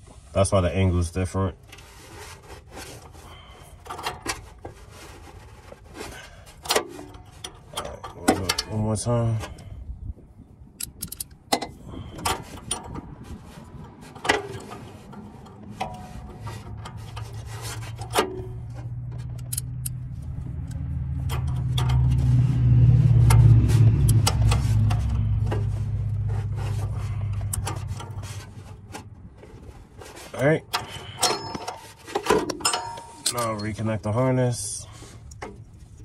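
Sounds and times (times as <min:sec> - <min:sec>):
metal clicks and scraping: 0:01.6 - 0:09.7, 0:10.8 - 0:34.0, 0:34.9 - 0:36.0
low droning rumble: 0:07.6 - 0:30.4.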